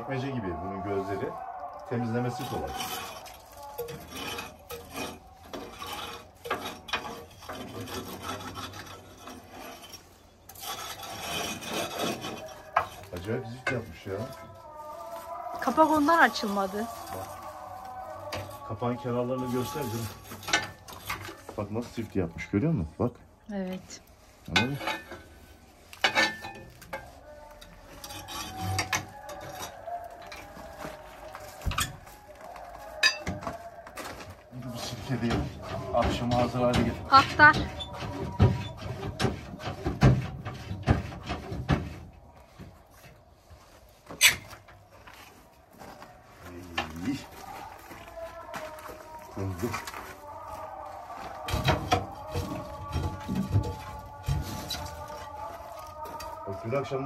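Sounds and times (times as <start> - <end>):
metal clanks and scraping: 2.1 - 22.7, 23.6 - 43.2, 44.0 - 45.4, 51.2 - 57.0
tar scraped from boiler grate: 2.2 - 18.5.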